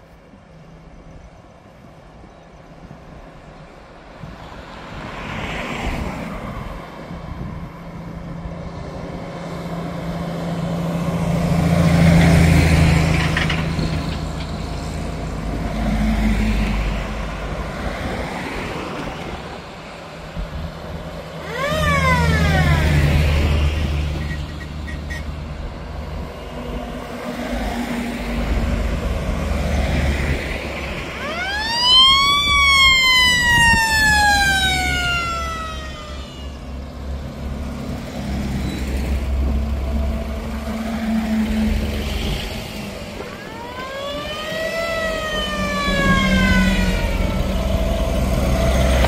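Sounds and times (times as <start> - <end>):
military vehicles driving past: 0.0 - 49.0
mechanical siren wailing: 21.4 - 23.7, 31.1 - 36.8, 43.3 - 49.0.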